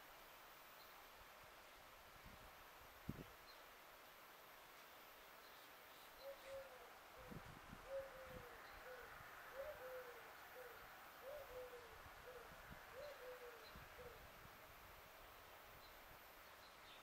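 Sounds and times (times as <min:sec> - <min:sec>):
dove cooing: 0:06.2 - 0:14.3.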